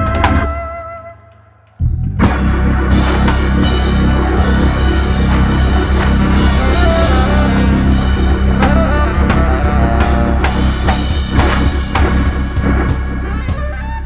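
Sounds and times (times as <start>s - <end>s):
organ bass line: 0.0s - 0.8s, 1.8s - 14.0s
drum kit with cymbals: 2.2s - 14.0s
hammond organ: 2.2s - 14.0s
tenor saxophone: 2.8s - 14.0s.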